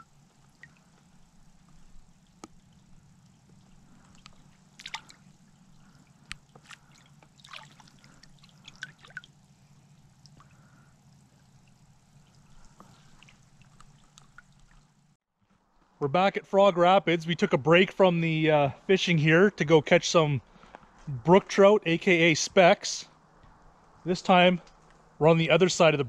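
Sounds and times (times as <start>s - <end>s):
water drips and splashes: 0.0s - 15.2s
faint low hum: 0.0s - 26.0s.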